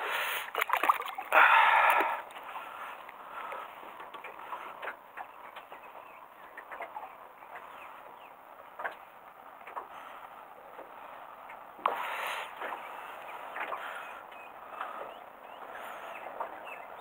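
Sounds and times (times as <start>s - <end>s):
water lapping: 0.0s - 5.0s
hand splashing water: 0.5s - 2.5s.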